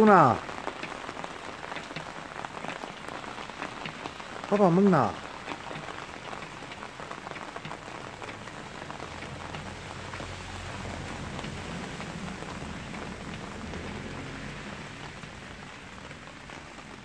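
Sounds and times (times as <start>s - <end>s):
rain pattering on concrete: 0.0s - 17.0s.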